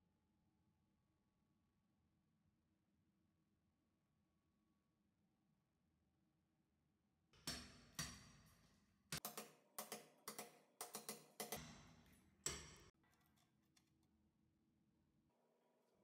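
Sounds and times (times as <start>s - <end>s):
hammer striking steel chisel: 7.4s - 13.0s.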